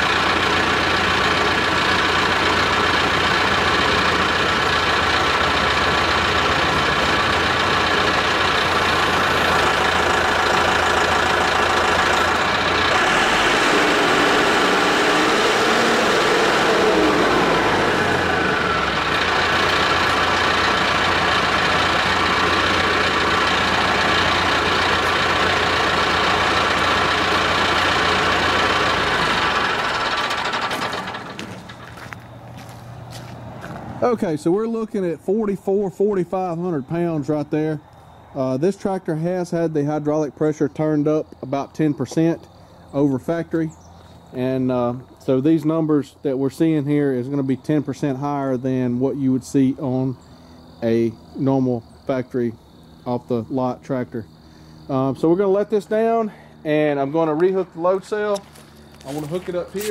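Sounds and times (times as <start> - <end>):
loader hydraulics whining: 0.0 - 33.1, 50.2 - 59.9
tractor diesel engine running: 0.0 - 59.9.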